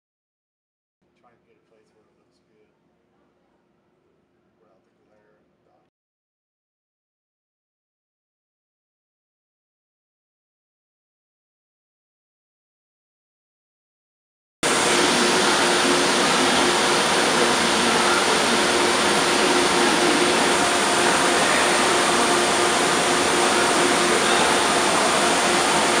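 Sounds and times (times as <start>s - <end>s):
faint hum: 14.6s - 26.0s
loud rushing noise: 14.6s - 26.0s.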